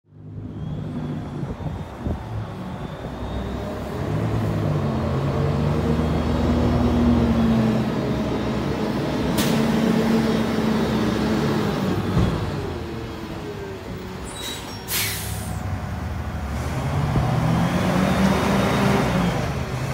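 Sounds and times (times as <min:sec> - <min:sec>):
sharp hiss of air: 0:14.4 - 0:15.7.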